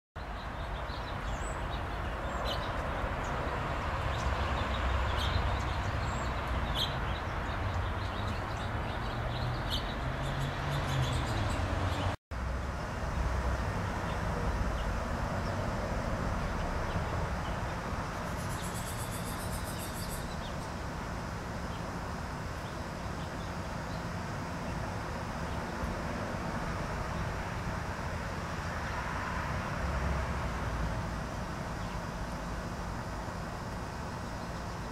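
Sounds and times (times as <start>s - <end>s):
finches chirping: 18.2s - 20.7s.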